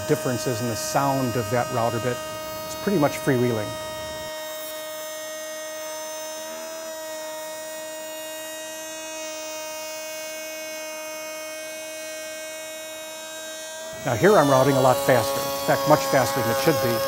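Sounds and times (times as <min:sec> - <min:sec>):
router whining: 0:00.0 - 0:17.0.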